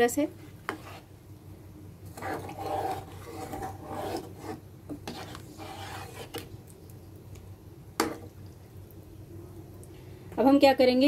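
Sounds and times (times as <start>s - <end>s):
spatula scraping a pan: 0.4s - 1.1s, 2.0s - 6.5s.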